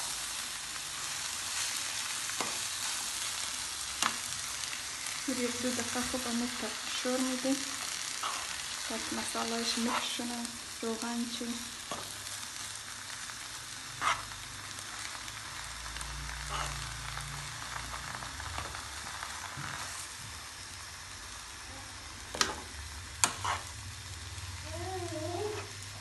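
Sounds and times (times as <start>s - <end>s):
filling sizzling in a pan: 0.0s - 26.0s
metal spoon scraping a pan: 8.1s - 8.7s, 14.0s - 14.4s, 22.3s - 23.8s.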